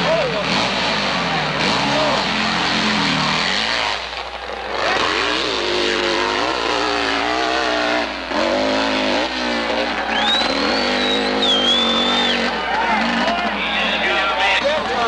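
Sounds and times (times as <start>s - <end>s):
motorcycle engine revving: 0.0s - 15.0s
high wavering whistle: 10.1s - 12.4s.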